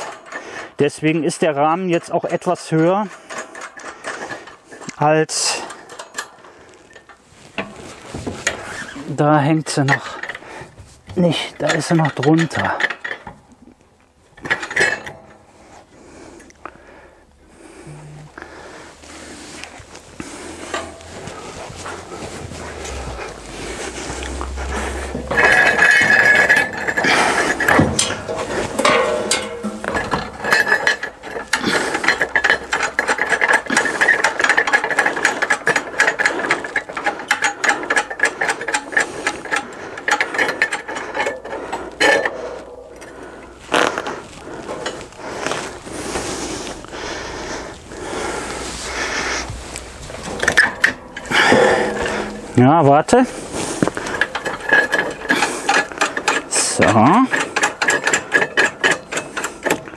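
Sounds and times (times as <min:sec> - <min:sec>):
metallic ratcheting clicks: 0:53.8 - 0:59.9.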